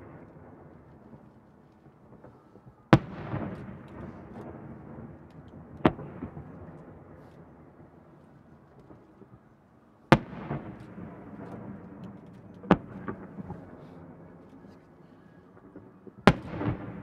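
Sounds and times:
firework booms: 0.0 - 8.0, 10.1 - 14.3, 15.6 - 17.0.

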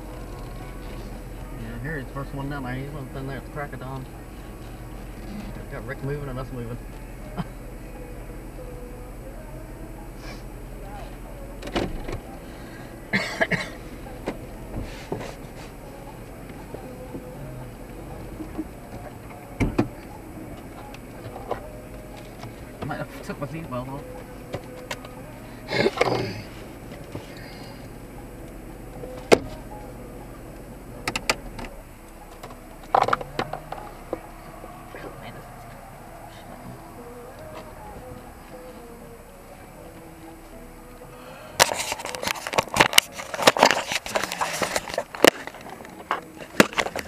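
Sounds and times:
idling car rumble: 0.0 - 47.0
person coughing: 13.1 - 13.8.

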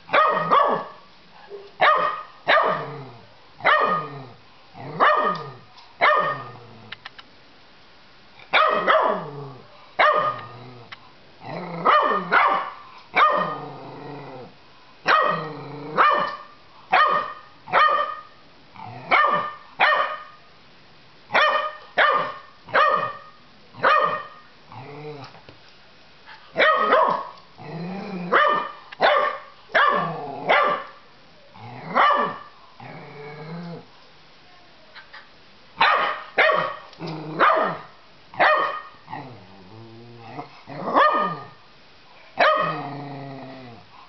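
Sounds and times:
puppy barking: 0.1 - 1.0, 1.8 - 2.9, 3.6 - 4.1, 5.0 - 6.5, 8.5 - 9.3, 10.0 - 10.5, 11.8 - 13.6, 15.1 - 15.4, 16.0 - 18.4, 19.1 - 20.4, 21.3 - 24.4, 26.6 - 27.4, 28.3 - 31.0, 32.0 - 32.5, 35.8 - 39.0, 40.9 - 41.6, 42.4 - 42.8.

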